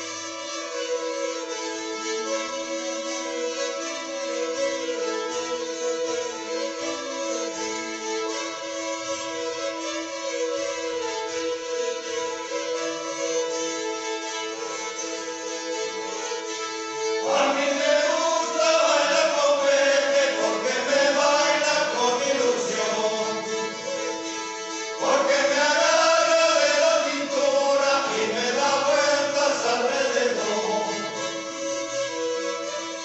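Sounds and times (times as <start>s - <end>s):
bowed folk fiddles playing: 0.0s - 33.0s
men singing: 17.2s - 23.9s, 25.0s - 31.3s.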